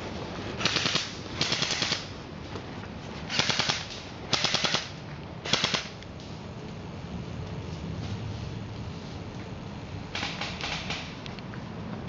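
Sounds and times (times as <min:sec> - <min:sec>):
airsoft rifle full-auto bursts: 0:00.6 - 0:02.1, 0:03.3 - 0:06.0.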